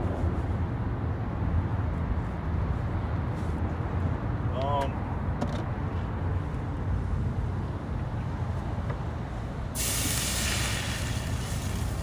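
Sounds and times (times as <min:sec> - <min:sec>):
water hissing in hot pan: 0:09.8 - 0:12.0.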